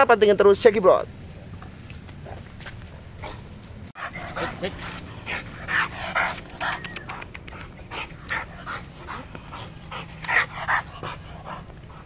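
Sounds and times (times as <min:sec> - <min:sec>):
dog panting: 0:03.2 - 0:12.0.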